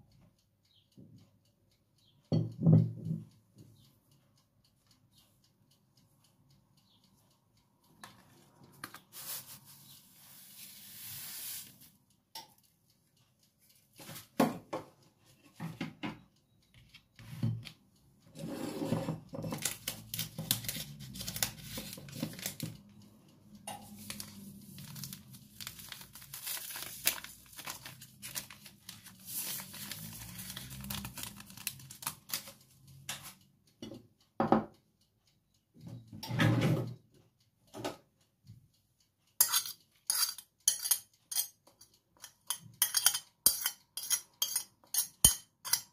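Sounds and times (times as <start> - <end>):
sugar pouring into plastic bowl: 9.1 - 11.8
packets tearing and crinkling: 24.8 - 32.4.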